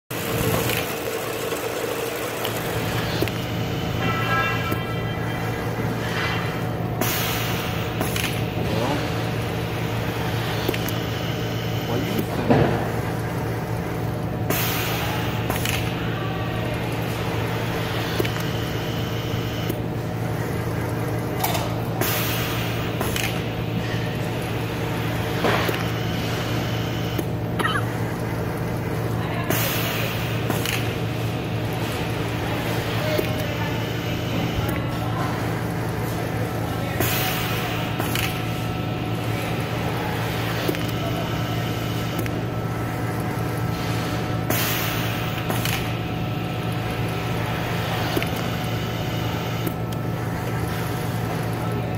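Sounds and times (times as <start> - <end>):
sheet feeder machine hum: 0.1 - 51.9
pneumatic air hiss: 6.4 - 8.1, 44.5 - 45.6.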